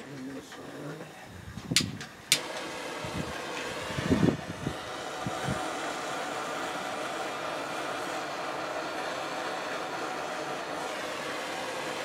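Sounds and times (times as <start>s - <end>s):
torch flame hissing: 1.4s - 12.0s
torch igniter clicks: 1.6s - 2.8s.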